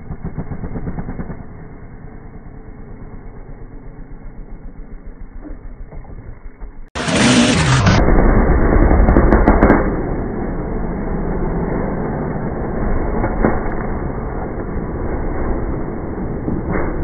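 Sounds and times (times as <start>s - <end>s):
dirt bike engine revving: 0.0s - 5.7s, 7.0s - 10.4s.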